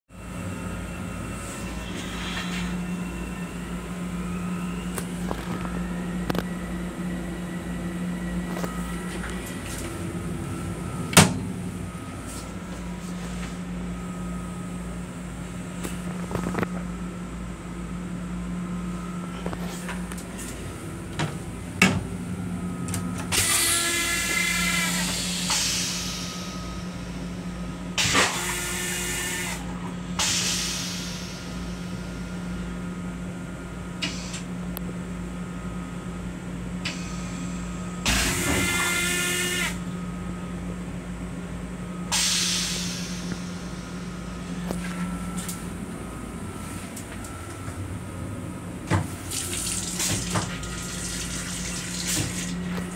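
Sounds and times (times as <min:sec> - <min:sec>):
rushing noise with ringing squeal: 0:00.1 - 0:15.8, 0:22.2 - 0:33.2, 0:36.9 - 0:40.6, 0:41.8 - 0:48.8
electric train running hum: 0:00.1 - 0:52.9.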